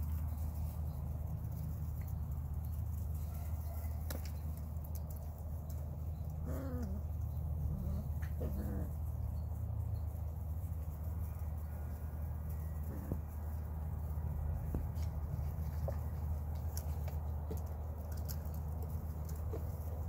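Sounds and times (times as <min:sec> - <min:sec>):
puppies yelping: 0:06.0 - 0:10.2.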